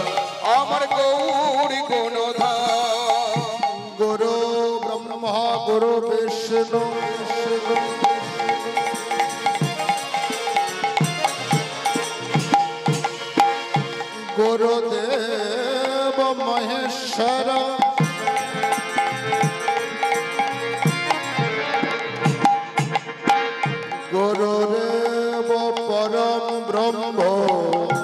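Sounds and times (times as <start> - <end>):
instrument drone: 0.0 - 26.0
hand drum strokes: 6.8 - 14.6, 17.8 - 25.2.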